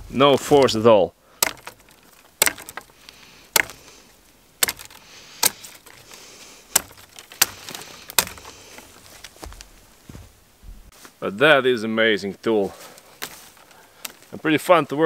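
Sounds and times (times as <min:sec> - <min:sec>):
knife cracking through dry stems: 0:01.4 - 0:09.5.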